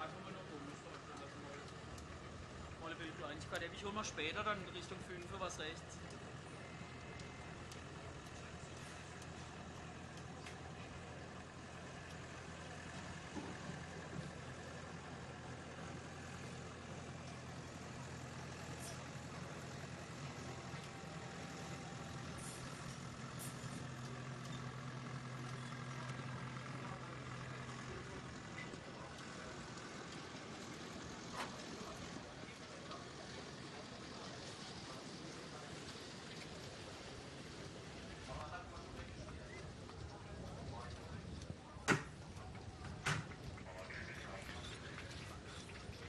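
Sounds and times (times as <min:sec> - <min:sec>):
low engine hum: 0:00.0 - 0:46.0
faint clicks: 0:07.1 - 0:09.4.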